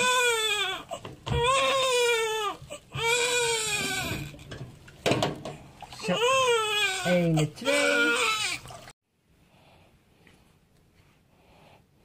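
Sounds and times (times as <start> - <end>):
newborn baby crying: 0.0 - 4.5, 5.9 - 8.8.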